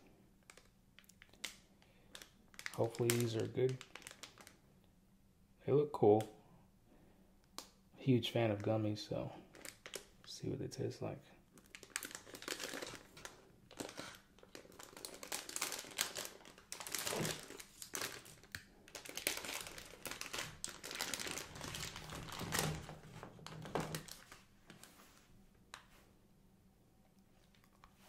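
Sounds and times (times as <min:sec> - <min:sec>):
sweet wrapper crinkling: 0:00.4 - 0:04.6, 0:09.5 - 0:10.3, 0:11.5 - 0:24.9.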